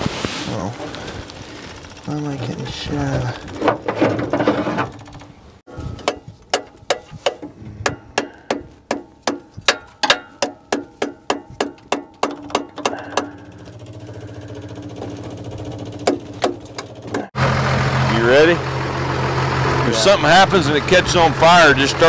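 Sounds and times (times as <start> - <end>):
electric fuel pump ticking: 0.8 - 3.9, 12.2 - 17.3.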